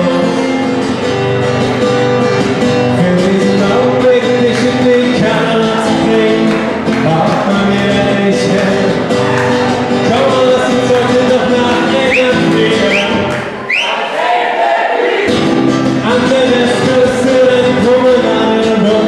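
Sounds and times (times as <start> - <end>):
man singing: 0.0 - 0.9, 2.8 - 13.4, 15.3 - 19.0
acoustic guitar strumming: 0.0 - 14.2, 15.2 - 19.0.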